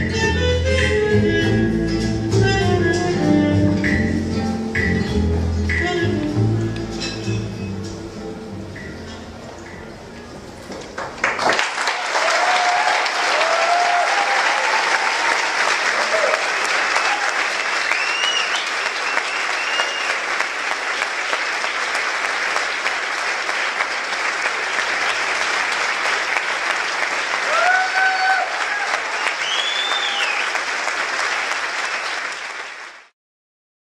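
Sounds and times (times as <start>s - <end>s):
audience applauding: 10.8s - 33.1s
whoops and cheers: 11.8s - 20.2s, 27.4s - 30.6s.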